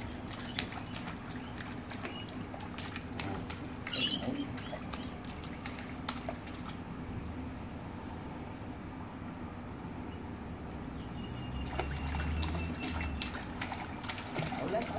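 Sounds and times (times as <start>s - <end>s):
pool water splashing: 0.0s - 7.1s, 11.5s - 14.9s.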